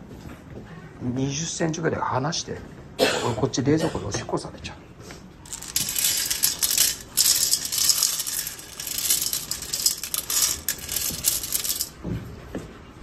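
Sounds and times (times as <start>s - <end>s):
kibble rattling on metal tray: 5.5s - 12.0s.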